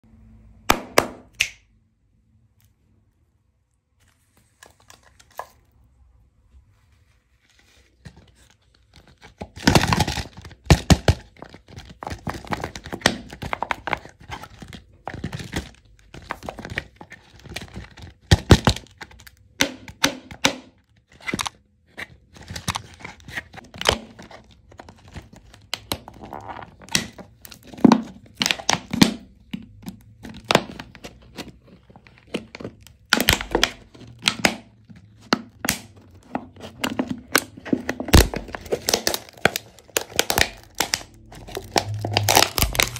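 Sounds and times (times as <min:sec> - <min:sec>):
plastic wrap crinkling: 0:20.8 - 0:42.9.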